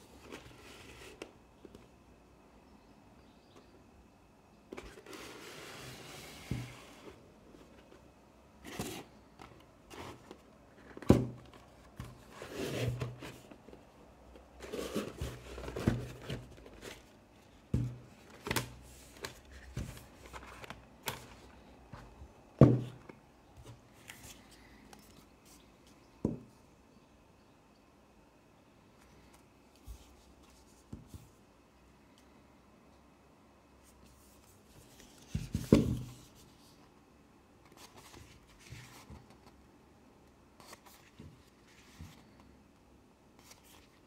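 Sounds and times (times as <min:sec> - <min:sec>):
cardboard rustling: 0:04.7 - 0:24.4.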